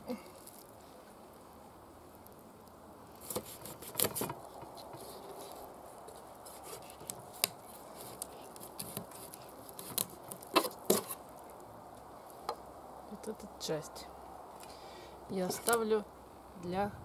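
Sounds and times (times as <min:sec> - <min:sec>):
knife crunching through fish bone: 0:03.2 - 0:04.8, 0:06.4 - 0:11.2.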